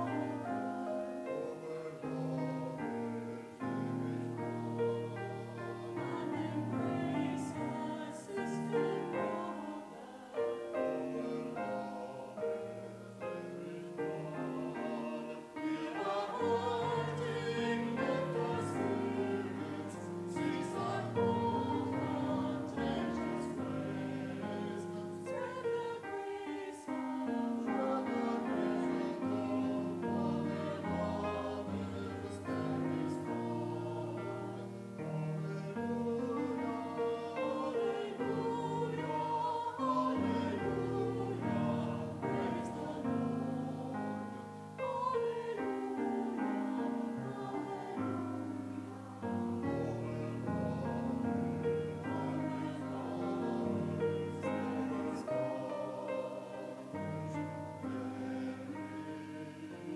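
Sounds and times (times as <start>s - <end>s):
choir singing a hymn: 0.0s - 59.9s
piano accompaniment: 0.0s - 59.9s.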